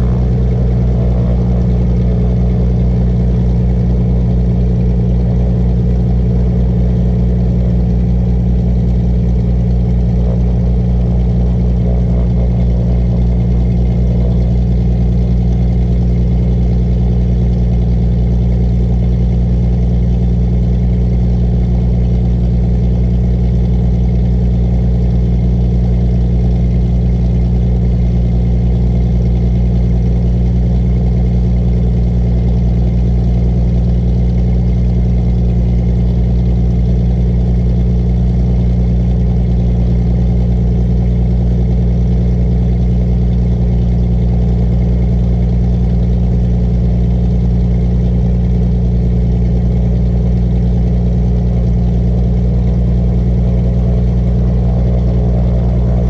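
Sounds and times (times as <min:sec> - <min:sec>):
propeller aircraft engine running: 0:00.0 - 0:56.0.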